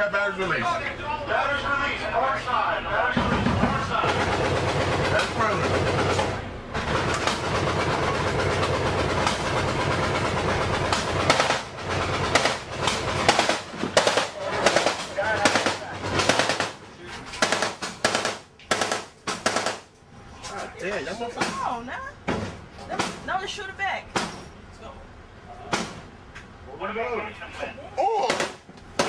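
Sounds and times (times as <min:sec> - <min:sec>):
automatic gunfire bursts: 0:10.9 - 0:16.8, 0:17.4 - 0:19.9.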